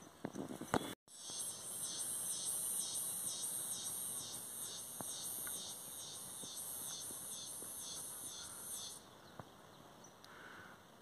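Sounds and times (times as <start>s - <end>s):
insects shrilling: 1.1s - 9.0s.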